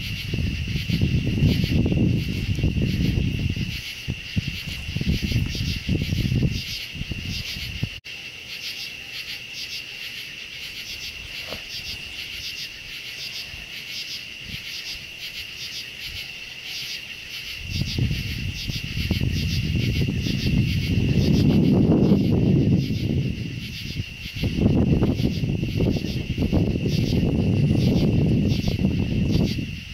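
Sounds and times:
low rumbling on microphone: 0.0s - 8.0s, 17.6s - 29.9s
crickets and katydids trilling: 0.0s - 29.9s.

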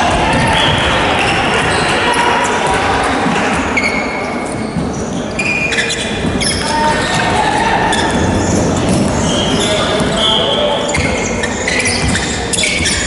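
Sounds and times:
distant voices in echoing hall: 0.0s - 13.0s
sneaker squeaks on hardwood: 3.5s - 13.0s.

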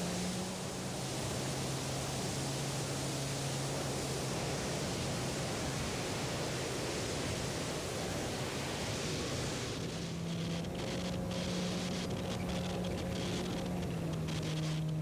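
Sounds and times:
aircraft engine hum: 0.0s - 15.0s
airflow rushing past microphone: 0.0s - 15.0s.

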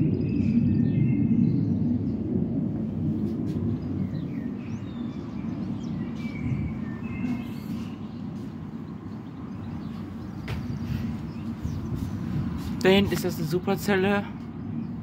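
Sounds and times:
steady low rumble: 0.0s - 15.0s
faint bird chirps: 3.8s - 12.4s.

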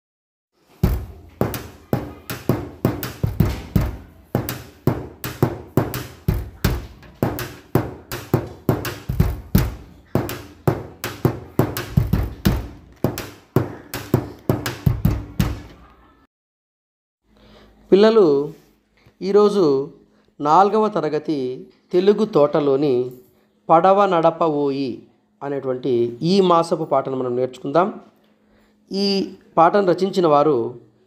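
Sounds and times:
percussive intro music: 0.8s - 15.7s.

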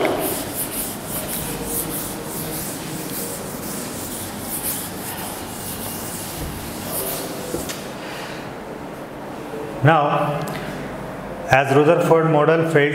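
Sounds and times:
eraser rubbing on chalkboard: 0.0s - 7.8s.

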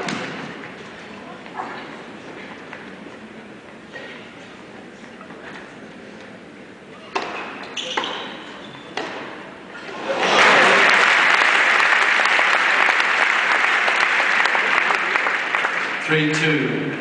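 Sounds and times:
crowd applauding: 10.0s - 16.4s.

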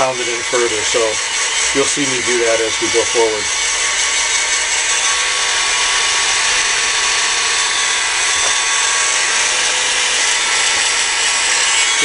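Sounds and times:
heat gun blowing hot air: 0.0s - 12.0s.

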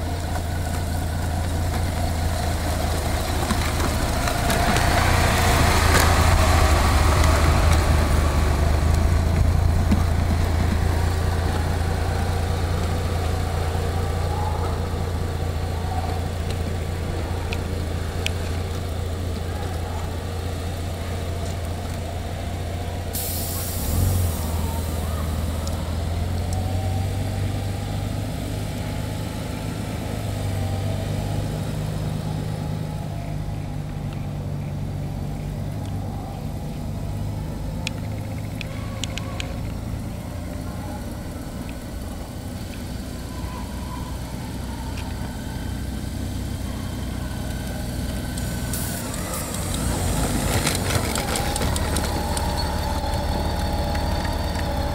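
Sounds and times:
motorcycle engine running: 0.0s - 54.9s
tyres rolling over dirt: 0.0s - 54.9s
hiss ending in a thump: 23.1s - 24.6s.

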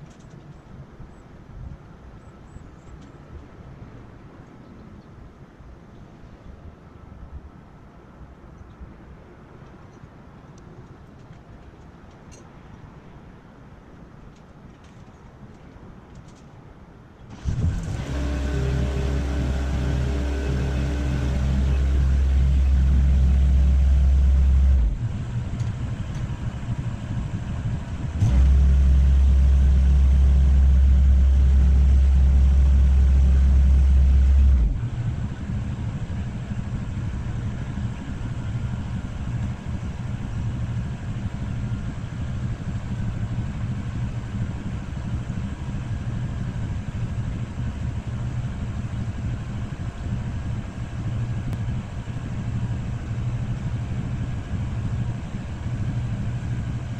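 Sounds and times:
boom lift engine humming: 17.3s - 56.9s
loud deep rumble: 17.3s - 56.9s.

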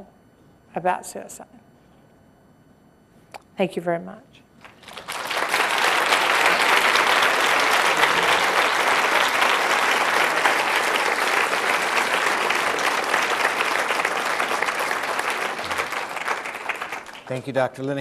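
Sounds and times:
large audience applauding: 4.6s - 17.8s.

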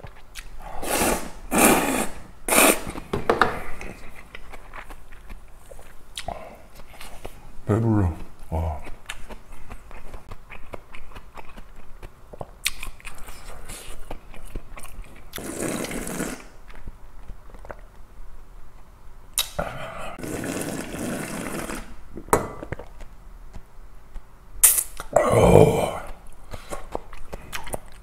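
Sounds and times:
slurping noodles: 0.7s - 3.1s, 15.3s - 16.6s, 19.6s - 22.0s.

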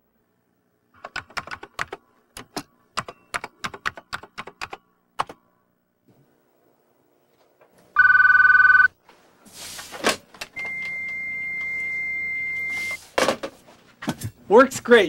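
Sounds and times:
telephone ringing: 8.0s - 9.0s, 10.6s - 13.0s.

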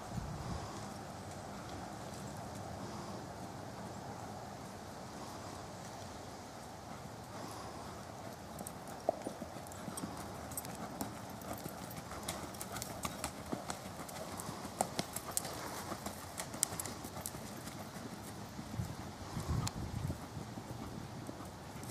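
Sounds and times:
horse hoofbeats: 6.8s - 21.9s.

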